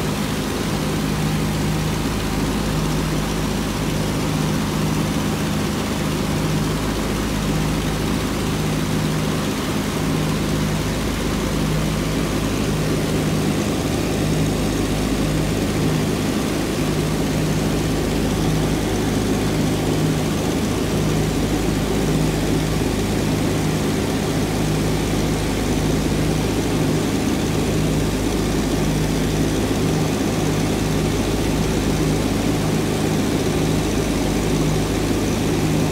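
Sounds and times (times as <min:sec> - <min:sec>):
propeller aircraft engines droning: 0:00.0 - 0:35.9.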